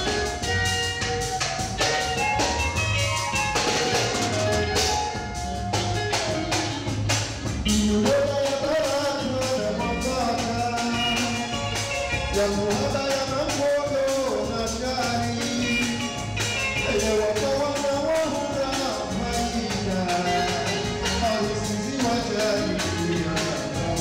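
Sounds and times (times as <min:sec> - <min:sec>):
band playing with percussion beat: 0:00.0 - 0:24.0
man singing into a microphone: 0:07.7 - 0:24.0.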